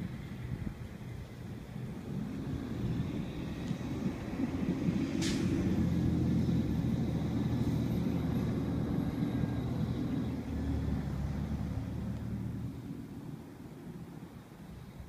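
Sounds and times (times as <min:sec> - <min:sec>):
vehicle engine rumbling: 0:00.0 - 0:15.0
short hiss: 0:05.2 - 0:05.6.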